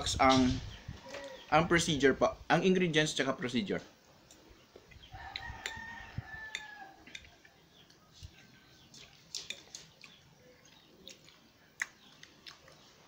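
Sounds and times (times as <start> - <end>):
rooster crowing: 5.1 - 7.1
fork clicking against a plate: 5.3 - 5.8, 6.5 - 7.3.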